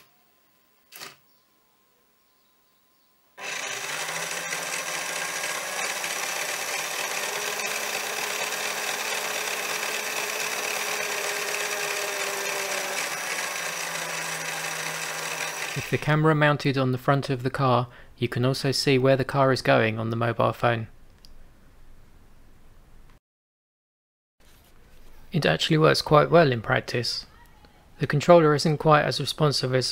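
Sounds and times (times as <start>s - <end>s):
toy car motor whirring: 3.4s - 16.0s.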